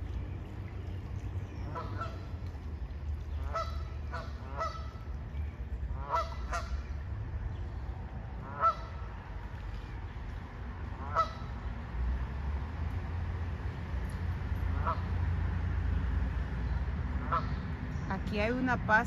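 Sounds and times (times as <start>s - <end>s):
waterfowl calling: 1.4s - 7.0s, 8.4s - 9.2s, 11.0s - 11.6s, 14.7s - 15.1s, 17.2s - 17.7s.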